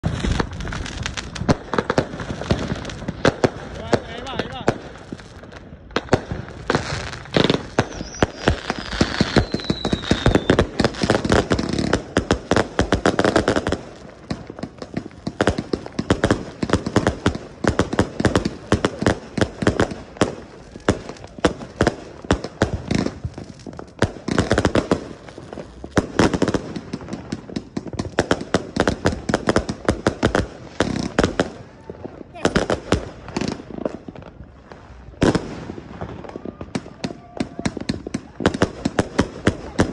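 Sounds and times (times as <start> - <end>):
firework falling whistle: 7.3 - 10.8.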